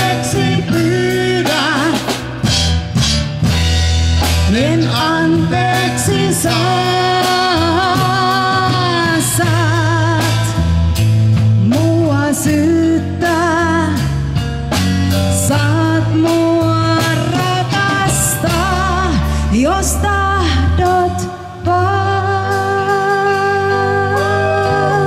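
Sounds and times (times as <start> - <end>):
bass line: 0.0 - 25.0
drums keeping steady beat: 0.0 - 25.0
live dance band playing: 0.0 - 25.0
lead melody with vibrato: 22.0 - 25.0.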